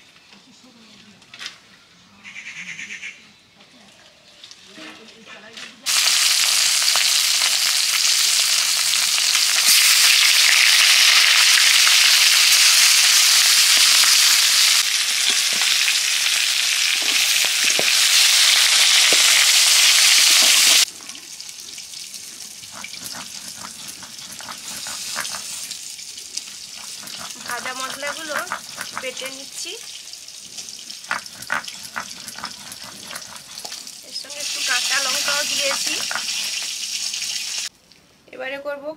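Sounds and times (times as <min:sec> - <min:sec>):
fish frying in hot oil: 0:05.9 - 0:37.7
stone grinding spices on slab: 0:22.6 - 0:25.8, 0:26.4 - 0:29.6, 0:30.9 - 0:36.8.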